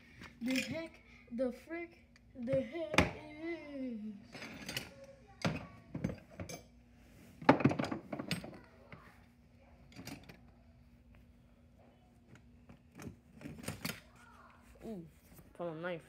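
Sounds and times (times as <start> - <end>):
faint steady hum: 0.0 - 16.0
household objects clattering: 4.2 - 6.8, 7.4 - 9.1.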